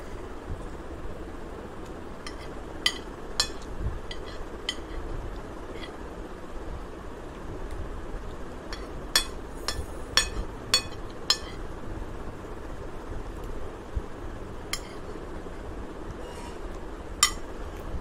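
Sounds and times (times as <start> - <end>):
steady background noise: 0.0 - 18.0
spoon clinking and scraping on plate: 2.2 - 5.0, 8.7 - 11.6, 14.8 - 15.1, 17.2 - 17.4.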